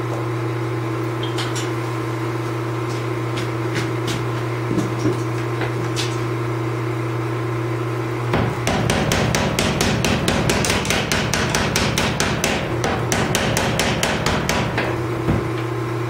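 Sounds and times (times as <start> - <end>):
steady electric hum: 0.0 - 16.0
power hammer striking metal: 8.3 - 15.6.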